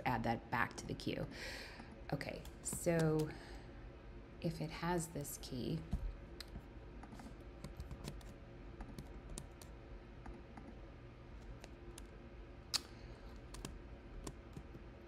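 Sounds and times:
computer keyboard keystrokes: 0:06.4 - 0:10.7, 0:12.8 - 0:14.8.

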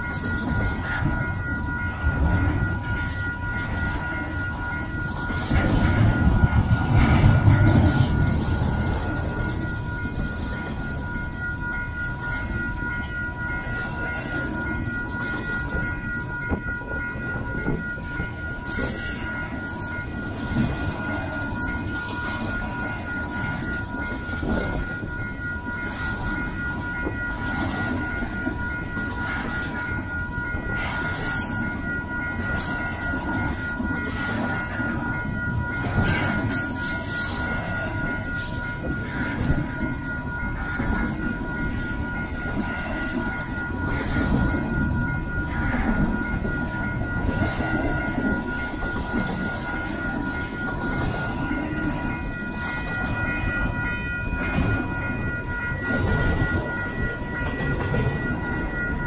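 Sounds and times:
wheels rumbling on rail: 0:00.0 - 0:59.0.

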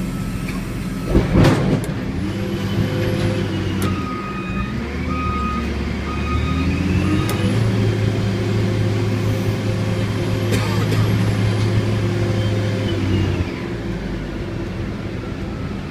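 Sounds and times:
diesel engine under load: 0:00.0 - 0:15.9.

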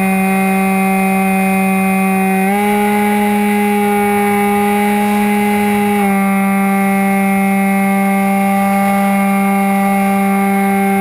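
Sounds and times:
rc plane motor droning whine: 0:00.0 - 0:11.0.

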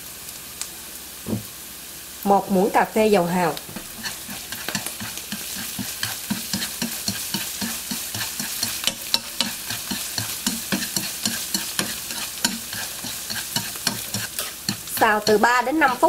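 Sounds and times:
mushrooms sizzling in oil: 0:00.0 - 0:16.0
chopsticks tapping pan: 0:03.7 - 0:16.0.

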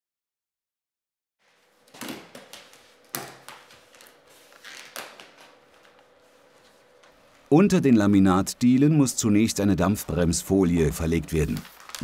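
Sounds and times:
foil underlay rustling and crinkling: 0:01.6 - 0:07.4, 0:09.9 - 0:12.0.

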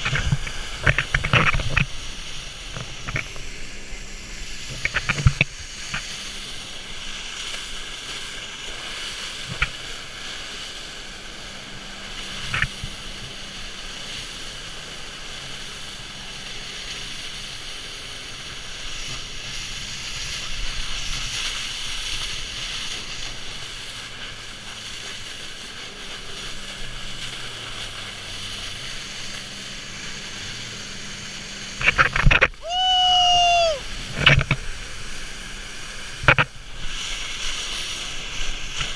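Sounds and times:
jet ski engine: 0:00.0 - 0:38.9
wind and spray on microphone: 0:00.0 - 0:38.9
man shouting: 0:32.6 - 0:33.8.

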